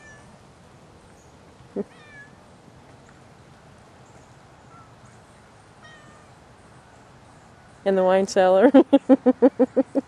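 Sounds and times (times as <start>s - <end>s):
outdoor background hiss: 0.0s - 10.0s
faint bird calls: 1.1s - 7.9s.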